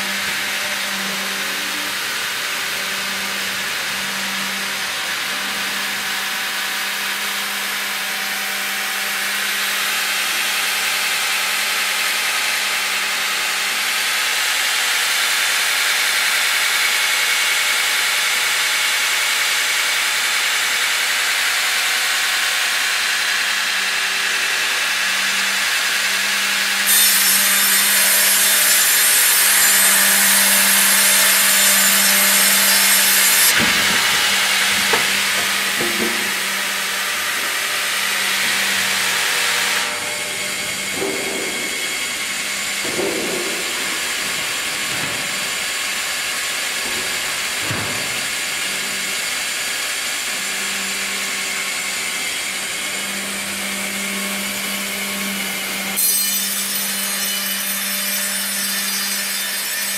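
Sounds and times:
band saw motor hum: 19.2s - 57.9s.

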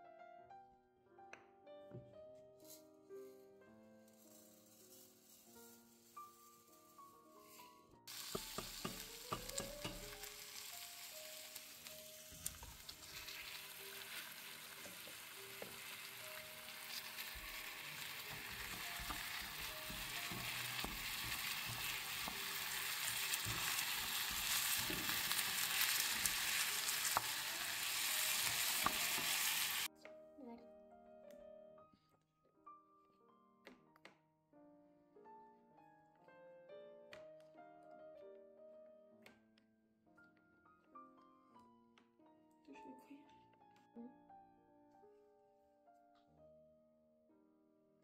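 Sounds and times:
food sizzling in frying pan: 4.3s - 29.9s.

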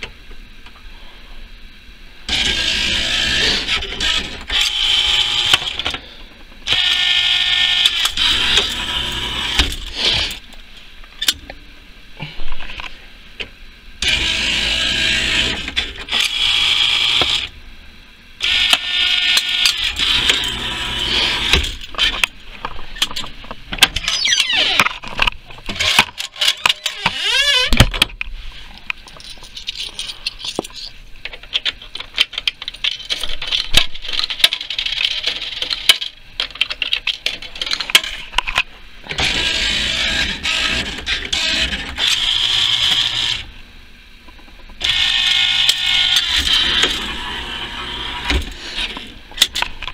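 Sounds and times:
clicks and clatter of handling: 27.8s - 38.7s.

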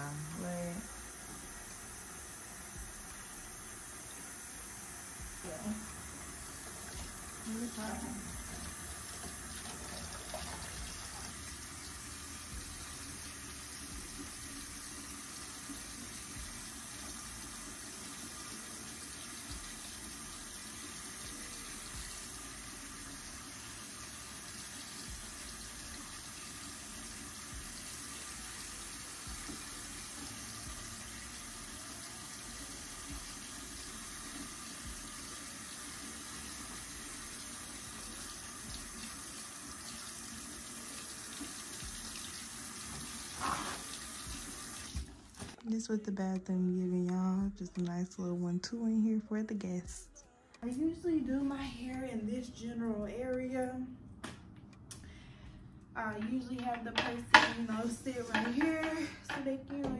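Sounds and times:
faucet water pouring into sink: 1.0s - 45.4s, 57.0s - 59.0s.

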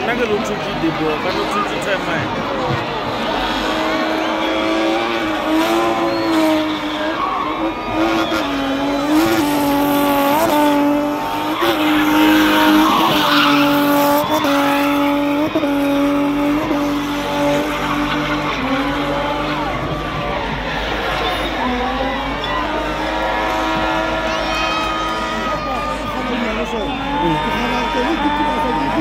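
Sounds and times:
car engine at high revs: 0.0s - 29.0s
tyres screeching: 2.7s - 29.0s.

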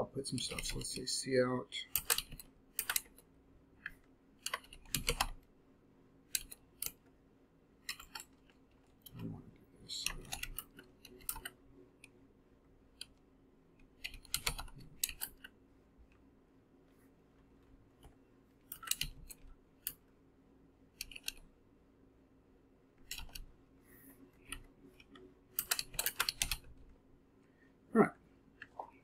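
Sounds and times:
computer keyboard typing: 1.8s - 3.2s, 4.4s - 5.4s, 10.0s - 11.6s, 14.0s - 15.5s, 18.7s - 20.0s, 21.0s - 21.4s, 23.0s - 23.5s, 24.4s - 26.8s.

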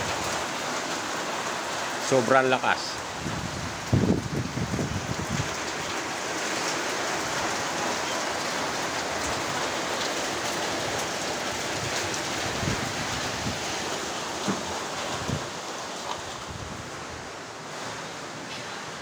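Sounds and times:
heavy rain pouring: 0.0s - 19.0s
strong wind: 3.0s - 6.3s, 10.8s - 17.9s.

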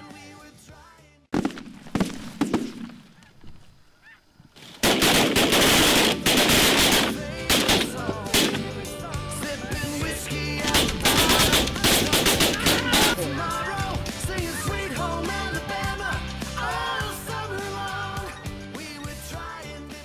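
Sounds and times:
geese honking: 3.1s - 4.4s
shotgun blasts: 4.8s - 8.8s, 10.7s - 13.2s.

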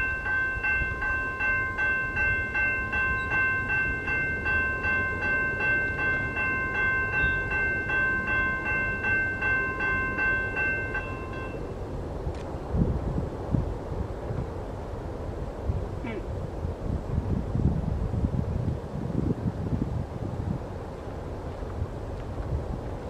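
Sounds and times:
railroad crossing bell dinging: 0.0s - 11.7s.

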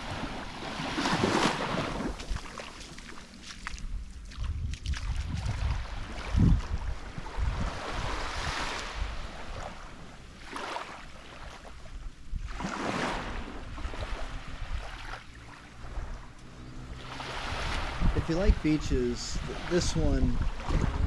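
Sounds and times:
waves lapping on sandy shore: 0.0s - 21.0s
wind buffeting microphone: 3.8s - 9.7s, 15.8s - 21.0s.

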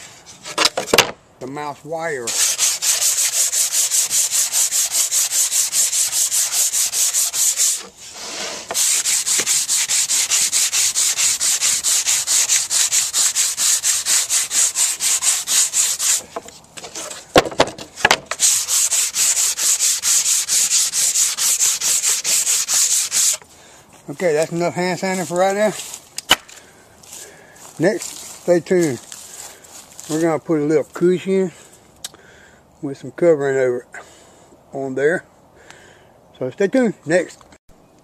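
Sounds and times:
sanding block scraping wood: 2.2s - 17.3s, 18.0s - 23.5s, 24.1s - 26.0s
sharp knocks: 17.3s - 18.3s.

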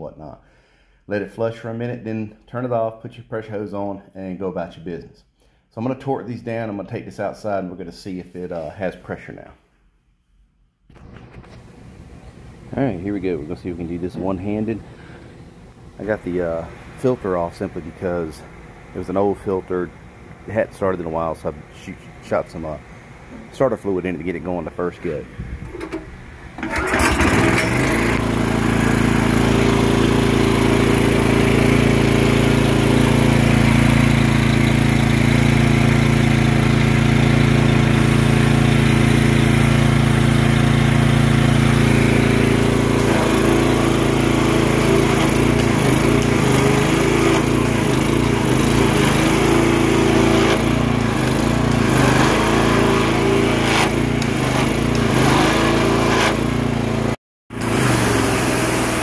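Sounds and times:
pressure washer engine running: 10.9s - 59.0s
pump rattling: 25.6s - 30.4s.

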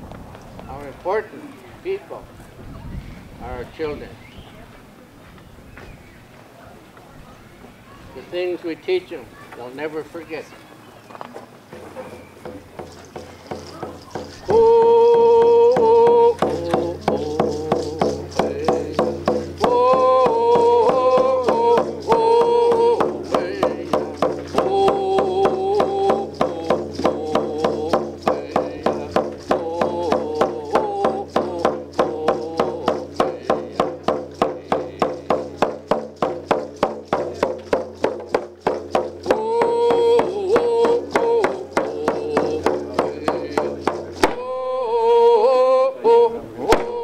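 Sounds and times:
hand drum beaten steadily: 12.4s - 44.4s
man singing with held notes: 12.4s - 47.0s.

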